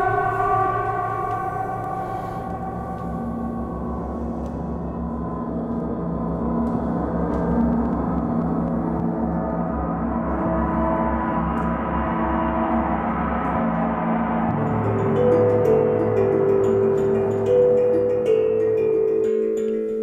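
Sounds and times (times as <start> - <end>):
gongs ringing: 0.0 - 4.3, 14.5 - 20.0
deep pulsing throb: 0.0 - 18.9.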